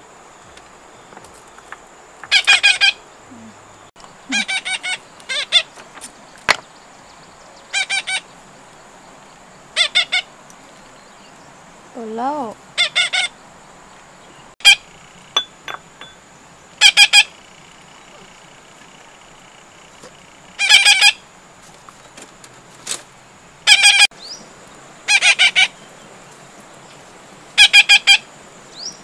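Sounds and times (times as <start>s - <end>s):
short high-pitched animal calls: 20.6s - 21.2s.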